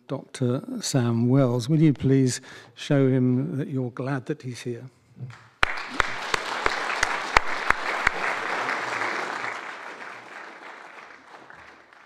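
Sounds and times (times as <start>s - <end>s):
close loud claps: 5.3s - 12.0s
audience applauding: 5.6s - 12.0s.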